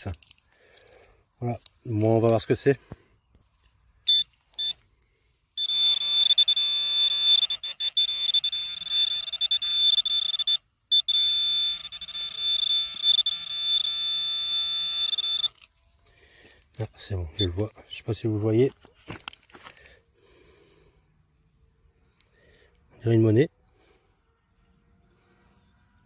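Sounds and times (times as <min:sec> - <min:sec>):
metal detector pinpointer tone: 0:04.0 - 0:04.8, 0:05.6 - 0:15.7, 0:17.3 - 0:17.7
short beeps: 0:04.0 - 0:04.8, 0:05.6 - 0:15.6.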